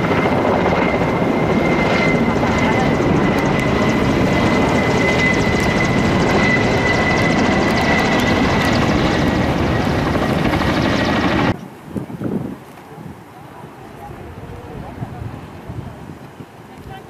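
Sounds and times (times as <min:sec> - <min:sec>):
helicopter rotor and turbine noise: 0:00.0 - 0:11.6.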